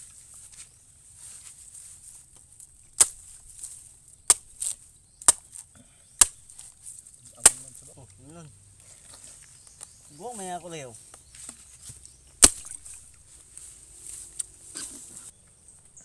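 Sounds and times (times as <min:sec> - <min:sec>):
blade chopping coconut: 0:04.3 - 0:05.5, 0:06.2 - 0:06.6.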